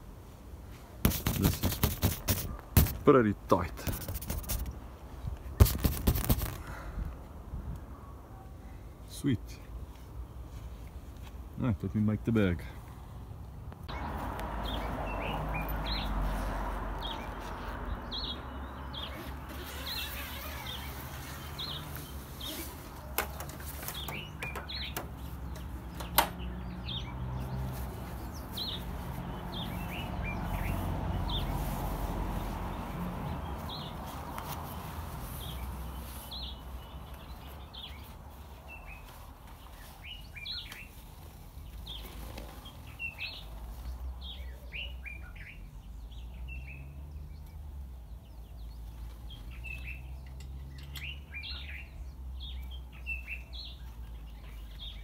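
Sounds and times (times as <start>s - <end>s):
small birds chirping: 1.1s - 55.0s
canvas rustling and flapping: 5.6s - 6.7s, 19.0s - 24.3s.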